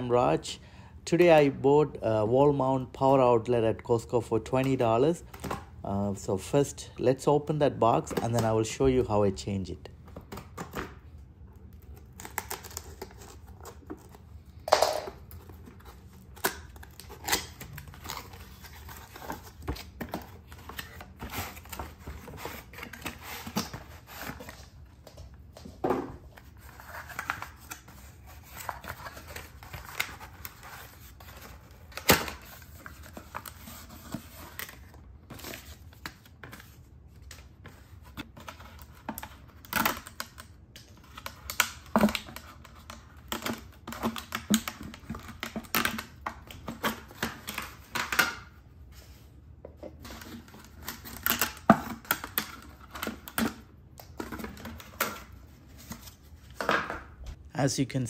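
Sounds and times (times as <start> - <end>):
cardboard and plastic being handled: 10.0 - 14.6, 15.2 - 56.9.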